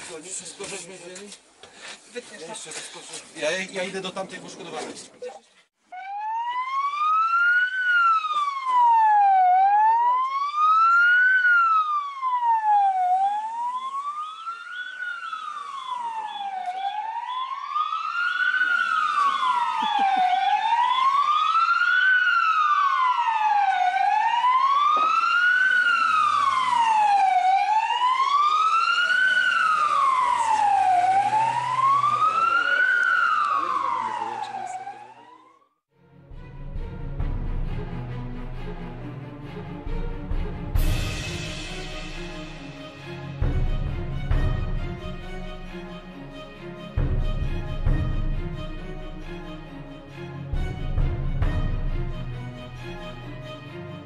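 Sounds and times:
ambulance siren wailing: 5.8 - 35.8.

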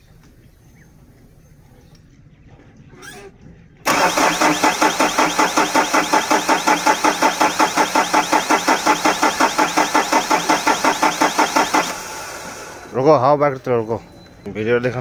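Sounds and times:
diesel engine cranking on starter: 3.0 - 13.9.

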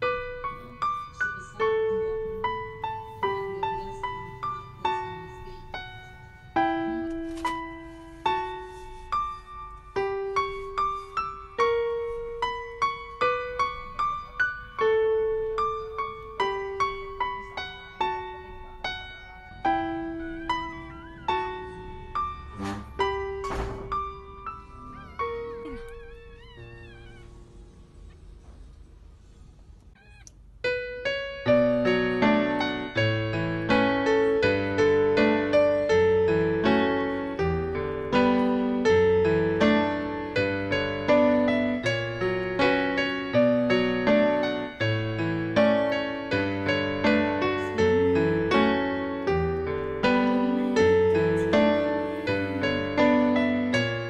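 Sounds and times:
gentle piano music: 0.0 - 29.3, 29.9 - 54.0
dog whining: 24.5 - 28.5, 29.9 - 30.4, 47.5 - 49.0.

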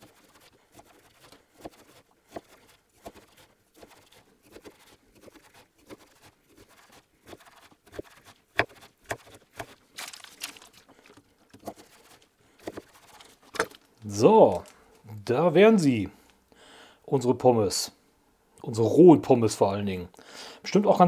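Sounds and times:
knife crunching through frozen dough: 0.0 - 14.8
baking paper crinkling: 9.7 - 14.8.

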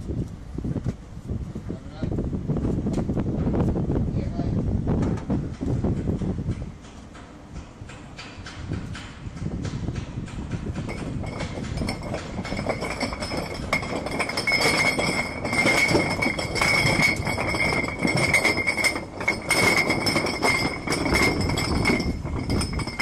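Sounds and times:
anchor chain clanking: 10.5 - 23.0.

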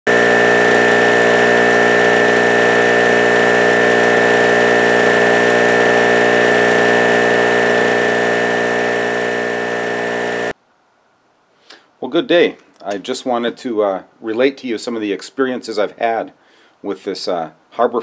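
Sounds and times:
generator engine droning: 0.0 - 10.5.

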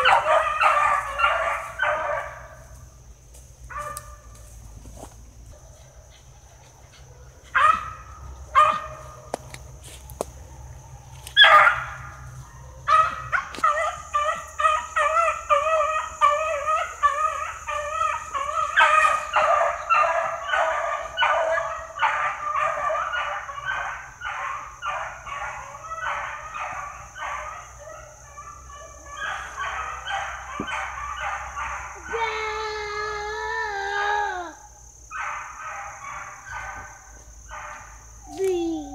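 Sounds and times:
hounds barking: 0.0 - 3.0, 3.6 - 32.4, 34.6 - 38.3
hound howling: 6.5 - 34.8.

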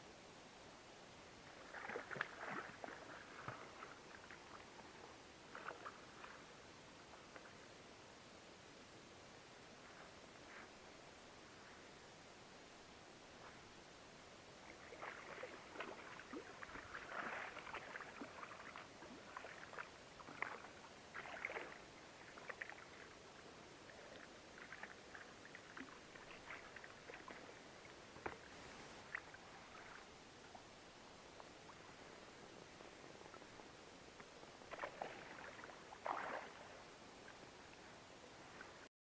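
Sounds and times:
water splashing and dripping: 1.7 - 4.6, 34.7 - 36.7.

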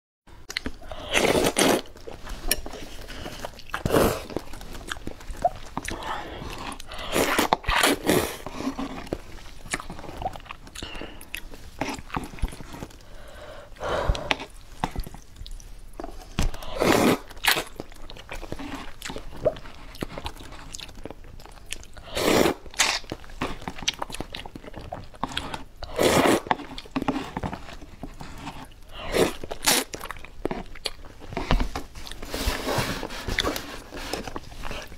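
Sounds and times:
chewing and mouth noises: 0.5 - 13.2, 14.1 - 32.4
wet noodle slurps: 16.7 - 17.7, 25.9 - 27.3.

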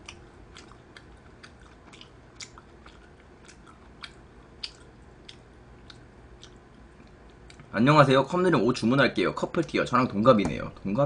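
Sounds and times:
person chewing food: 0.0 - 7.7.

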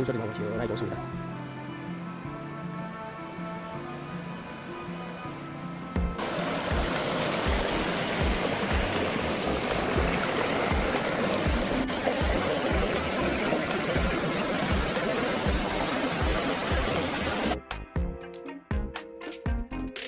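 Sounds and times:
background music beat: 5.8 - 20.0
stream babbling over rocks: 6.2 - 17.6.

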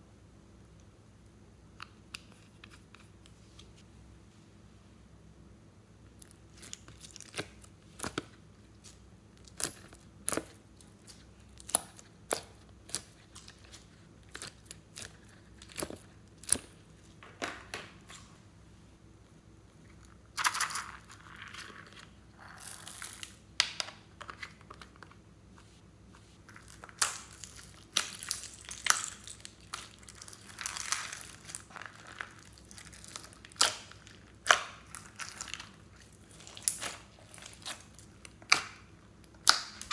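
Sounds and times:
slime crackling: 26.4 - 39.9.

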